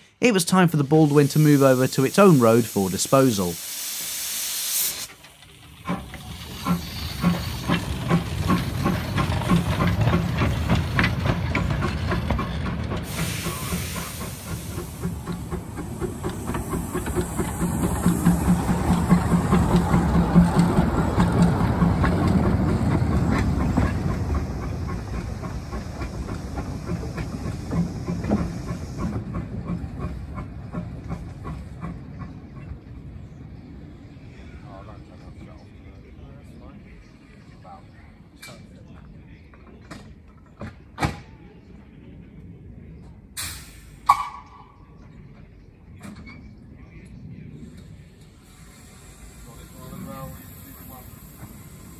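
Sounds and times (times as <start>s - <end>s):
steam locomotive chuffing: 0.6s - 35.7s, 47.6s - 51.9s
steam hiss: 0.7s - 9.7s, 13.0s - 20.6s, 23.6s - 30.4s, 43.4s - 44.1s, 47.9s - 51.9s.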